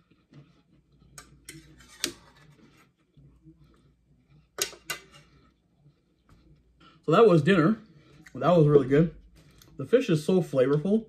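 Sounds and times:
quiet chewing: 0.0s - 1.8s, 9.3s - 9.8s.

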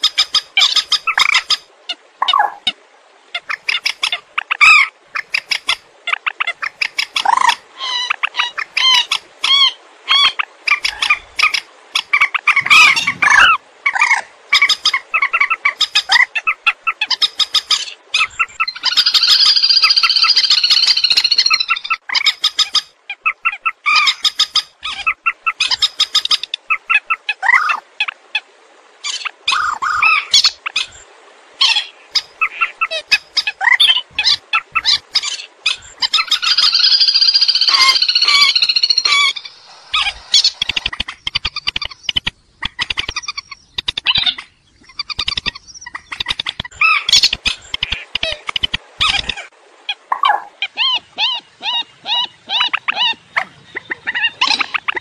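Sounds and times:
short bird squawks and clucks: 3.3s - 27.8s, 31.6s - 55.0s
swamphen screeching calls: 6.6s - 27.8s, 31.6s - 41.7s, 49.0s - 53.2s.

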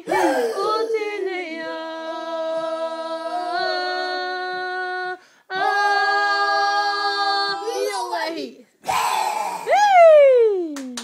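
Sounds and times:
boys and woman singing unaccompanied: 0.0s - 8.6s.

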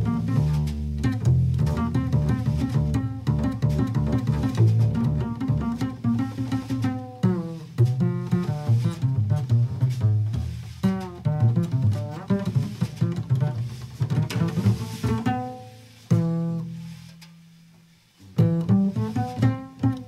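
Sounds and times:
double bass playing: 0.0s - 20.0s.

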